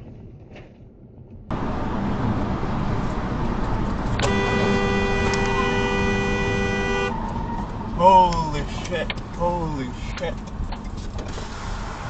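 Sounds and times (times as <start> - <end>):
car road noise: 0.0 - 12.0
car horn held down: 4.2 - 7.2.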